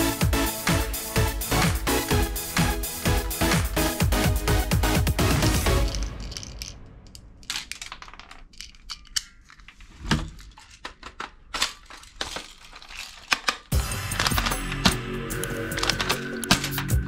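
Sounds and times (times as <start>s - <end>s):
toy gun plastic clicking: 7.5s - 9.8s, 10.4s - 16.9s
sharp plastic snaps: 8.6s - 9.7s.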